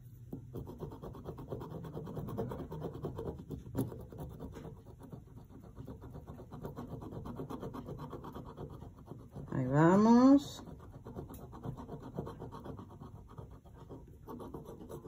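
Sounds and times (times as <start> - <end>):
scissors scratching over vinyl: 0.6 - 15.0.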